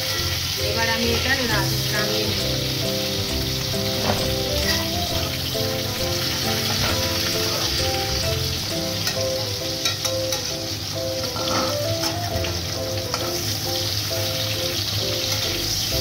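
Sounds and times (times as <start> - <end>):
background music: 0.0 - 16.0
food sizzling in hot oil: 0.0 - 16.0
metal spatula scraping pan: 3.3 - 10.6, 11.2 - 12.2.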